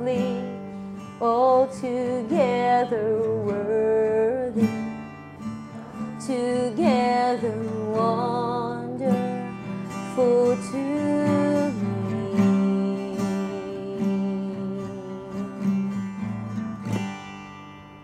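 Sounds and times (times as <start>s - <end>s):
acoustic guitar strumming: 0.0s - 18.0s
person singing long notes: 5.7s - 15.9s.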